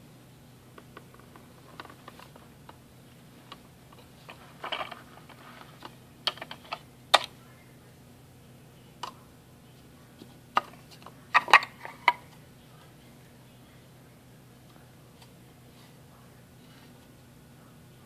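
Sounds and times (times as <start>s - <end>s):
plastic parts clicking and knocking: 0.8s - 2.4s, 3.5s - 7.3s, 10.5s - 12.3s.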